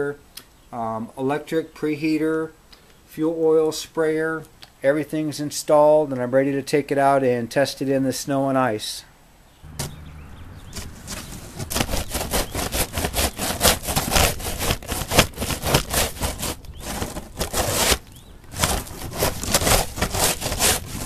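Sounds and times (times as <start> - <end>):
snow shovel scraping ice: 10.6 - 21.0.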